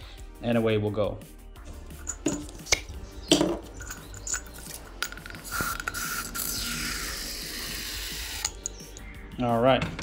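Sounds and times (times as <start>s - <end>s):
aerosol can spraying: 2.3s - 8.6s.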